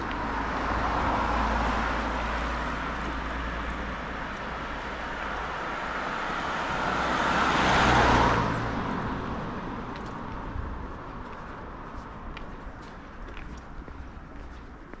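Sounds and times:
vehicle passing by: 0.0 - 10.6.

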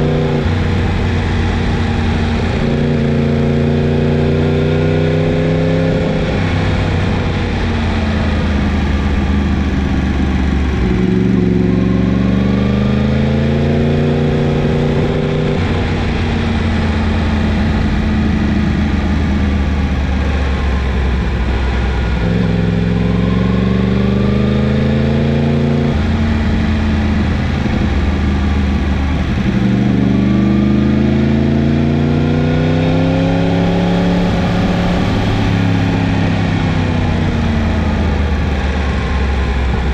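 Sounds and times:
motorcycle engine accelerating: 0.0 - 39.9.

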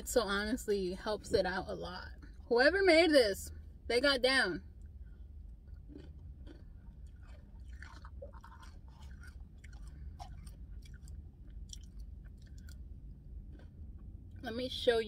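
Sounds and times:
steady low hum: 0.0 - 15.0
chewing with mouth clicks: 5.1 - 14.4.

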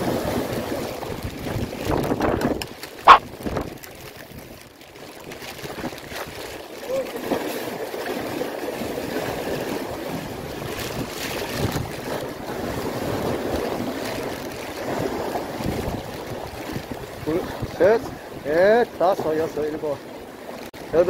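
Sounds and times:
wind buffeting microphone: 0.0 - 4.6, 14.8 - 18.5
waves washing against breakwater: 0.0 - 21.0.

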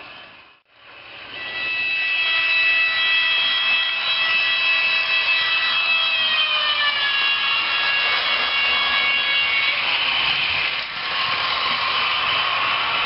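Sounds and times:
model train motor whine: 0.3 - 13.0
rushing noise: 8.1 - 13.0.

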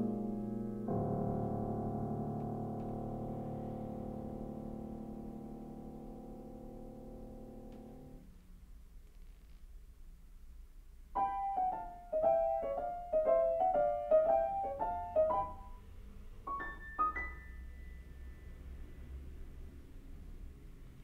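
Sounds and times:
grand piano notes: 0.0 - 8.2, 11.2 - 18.8.

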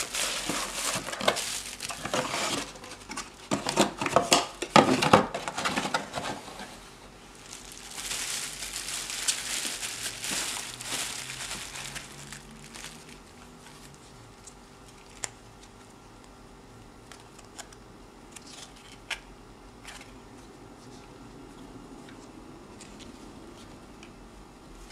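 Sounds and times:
bubble-wrap bag crinkling: 0.0 - 4.0, 7.2 - 14.2, 14.9 - 15.4
cardboard packaging rustling: 0.0 - 14.2.

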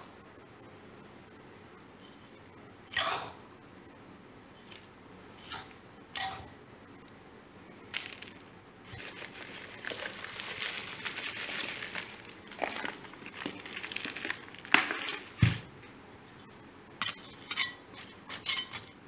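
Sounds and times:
cricket trilling: 0.0 - 19.0
falling soil trickling: 7.9 - 15.5
soil scraping: 7.9 - 15.5.

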